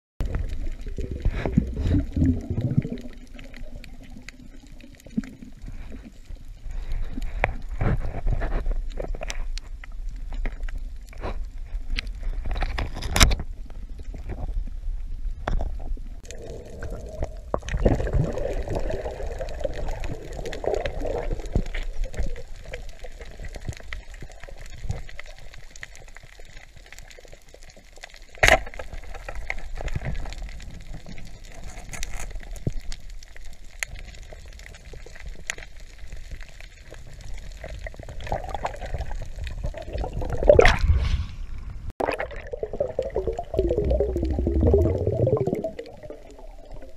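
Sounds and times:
water gurgling: 0:00.2 - 0:08.4, 0:13.4 - 0:46.9
low underwater rumble: 0:00.2 - 0:12.5, 0:37.0 - 0:46.9.

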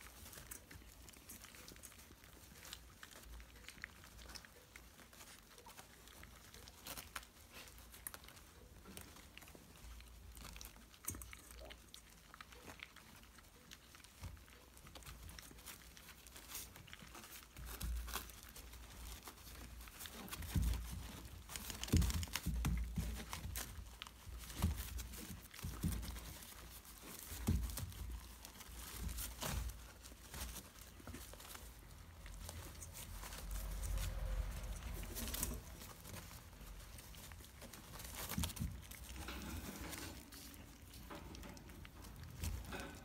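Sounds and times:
puppies scrabbling on crinkly pad: 0:00.0 - 0:43.0
rustling taps and soft thumps: 0:12.2 - 0:43.0.

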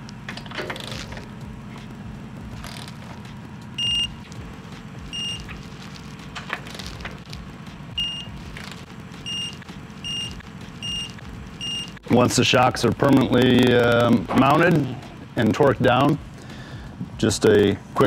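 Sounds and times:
short high electronic beeps: 0:03.8 - 0:04.2.

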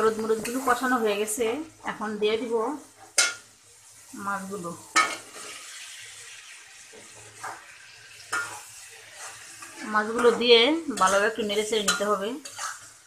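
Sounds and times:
fish sizzling in hot oil: 0:00.0 - 0:13.0
spatula stirring in metal pan: 0:02.8 - 0:04.1, 0:04.9 - 0:13.0.

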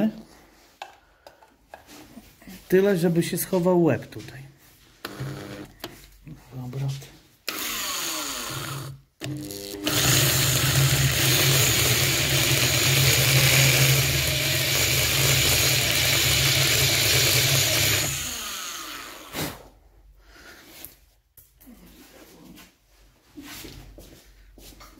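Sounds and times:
electric drill boring into metal: 0:05.0 - 0:05.7, 0:07.5 - 0:19.4.

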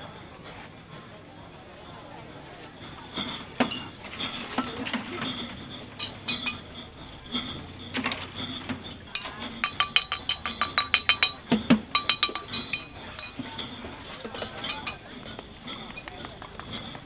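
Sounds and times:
scattered clinks: 0:02.8 - 0:17.0.

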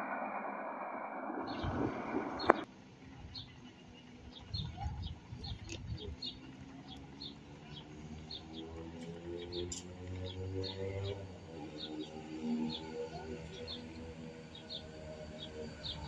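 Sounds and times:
loud rush of noise: 0:00.0 - 0:02.7
steady tones: 0:00.0 - 0:02.7
small birds chirping: 0:01.5 - 0:16.0.

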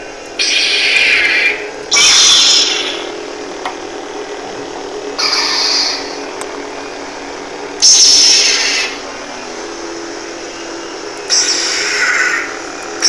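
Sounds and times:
lightsaber electronic hum: 0:00.0 - 0:13.0
lightsaber ignition hiss: 0:00.4 - 0:03.4, 0:05.2 - 0:13.0.

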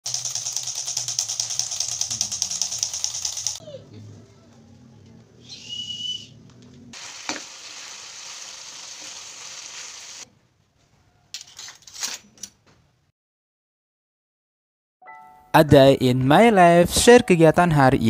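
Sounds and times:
food sizzling in a frying pan: 0:07.0 - 0:10.2.

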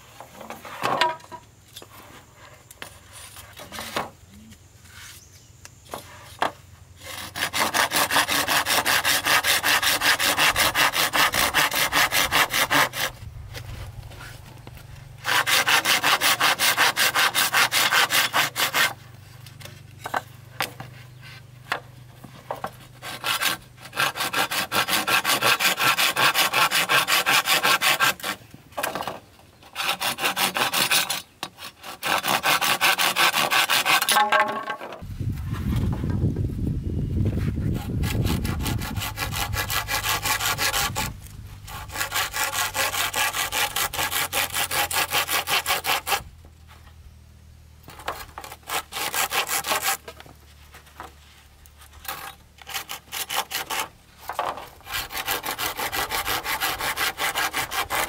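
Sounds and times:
hand saw cutting wood: 0:05.9 - 0:14.4, 0:15.1 - 0:35.0, 0:37.6 - 0:46.3, 0:47.9 - 0:50.2, 0:51.8 - 0:58.0.

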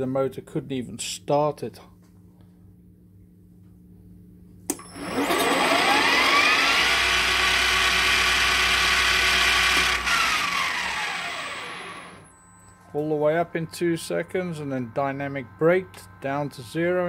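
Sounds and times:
lathe motor whining: 0:04.7 - 0:12.3.

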